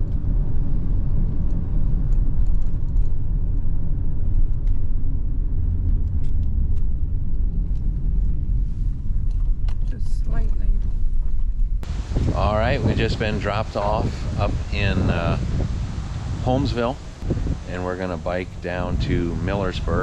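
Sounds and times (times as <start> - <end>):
vehicle engine rumble: 0.0 - 20.0
road noise: 11.8 - 20.0.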